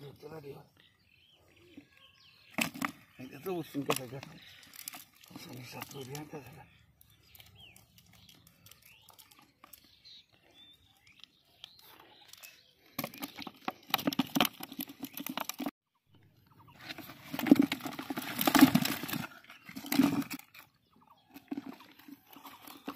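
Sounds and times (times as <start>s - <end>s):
fish slapping plastic bucket: 13.0s - 15.7s, 17.2s - 20.6s.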